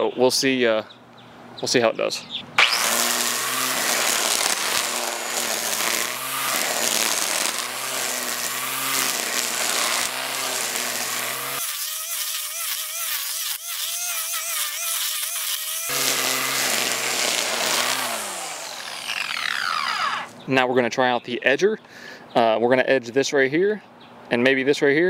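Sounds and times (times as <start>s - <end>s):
electric string trimmer cutting grass: 2.6s - 20.4s.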